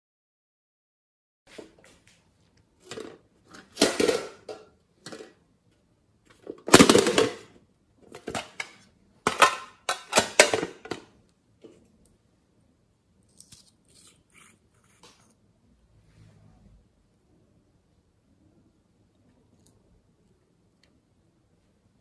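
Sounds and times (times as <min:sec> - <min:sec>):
plastic containers clattering: 0:02.8 - 0:05.4, 0:06.3 - 0:11.2.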